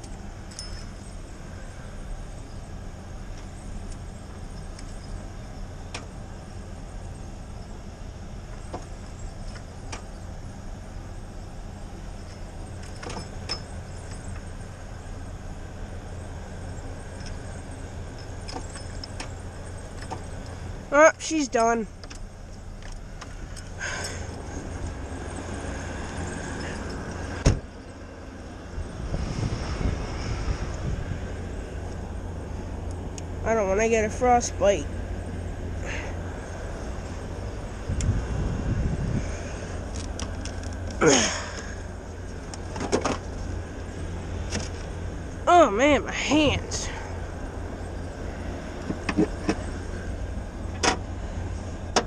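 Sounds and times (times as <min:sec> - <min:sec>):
truck engine rumbling: 0:00.0 - 0:52.0
person climbing out of truck: 0:12.1 - 0:14.6, 0:39.1 - 0:43.6, 0:48.6 - 0:50.0.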